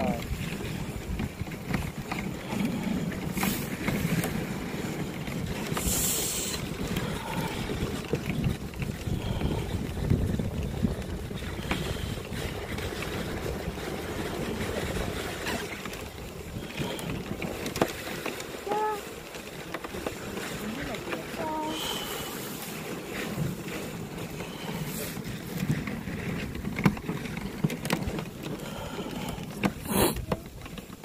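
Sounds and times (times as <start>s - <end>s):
wind on microphone: 0.0s - 19.1s
sled runners swishing on snow: 0.0s - 31.0s.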